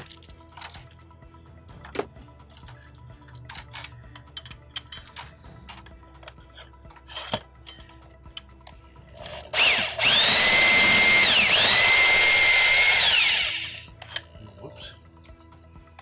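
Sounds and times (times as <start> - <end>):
drill whining: 9.2 - 13.9.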